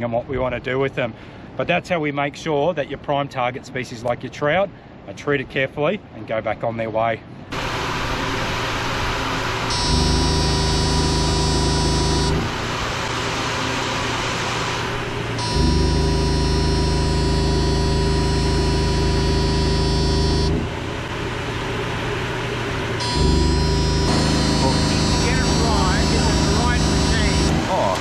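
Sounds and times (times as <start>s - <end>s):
electric unit buzzing: 7.5s - 28.0s
generator humming: 7.5s - 28.0s.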